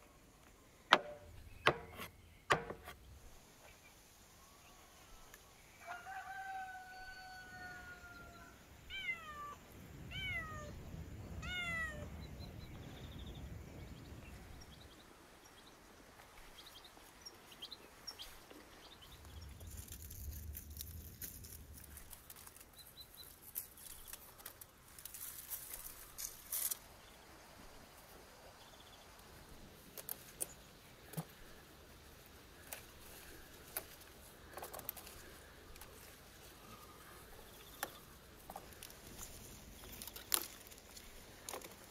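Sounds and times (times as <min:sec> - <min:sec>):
rooster crowing: 0:05.8 - 0:08.6
plants clicking and rustling: 0:18.2 - 0:27.0, 0:29.8 - 0:41.9.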